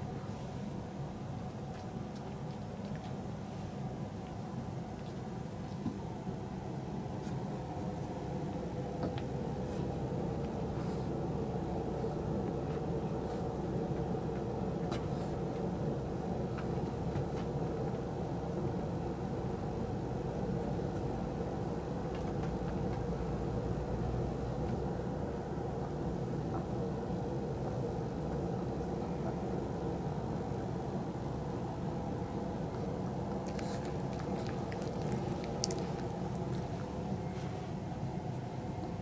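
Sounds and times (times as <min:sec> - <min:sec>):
fan heater humming: 0:00.0 - 0:39.0.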